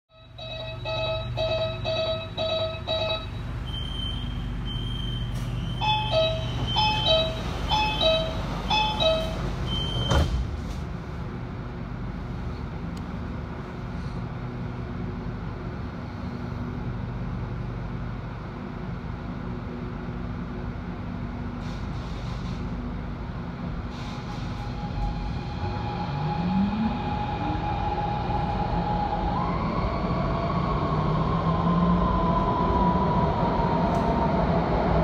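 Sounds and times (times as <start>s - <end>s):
electric train humming: 0.1s - 10.1s, 23.0s - 35.0s
falling two-note warning beeps: 0.2s - 10.2s
train doors thudding shut: 5.2s - 10.9s.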